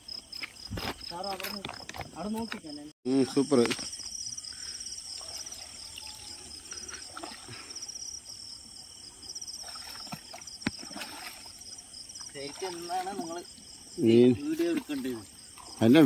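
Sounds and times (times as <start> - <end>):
night insects chirping: 0.0 - 16.0
feet wading through water: 5.0 - 8.7, 9.3 - 13.6, 14.4 - 16.0.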